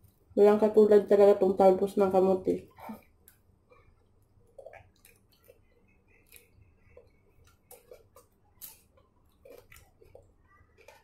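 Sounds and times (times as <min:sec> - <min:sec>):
faint chewing and mouth clicks: 0:02.7 - 0:11.0.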